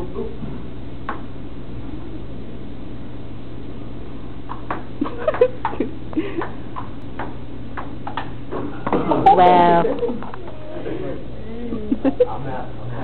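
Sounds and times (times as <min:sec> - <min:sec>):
background hum: 0:00.0 - 0:13.0
table tennis ball hits: 0:04.5 - 0:04.9, 0:06.4 - 0:09.0.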